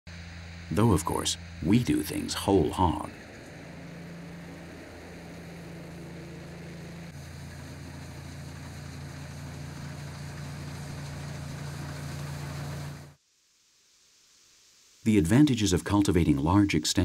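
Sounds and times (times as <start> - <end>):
combine harvester running: 0.1 - 13.2.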